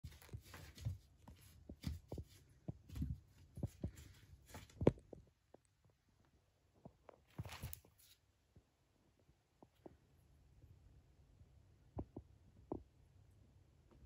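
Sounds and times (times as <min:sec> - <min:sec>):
cats pawing at cardboard: 0:00.0 - 0:05.2.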